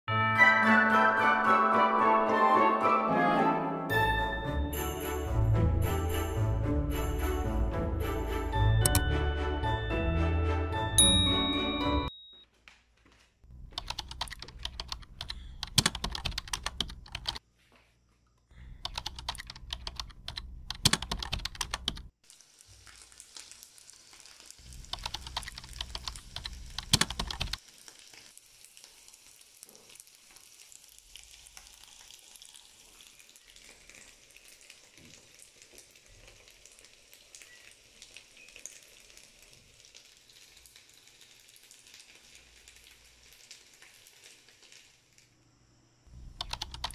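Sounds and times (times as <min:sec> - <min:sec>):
sausages sizzling in oil: 0:22.2 - 0:26.8, 0:27.6 - 0:46.0.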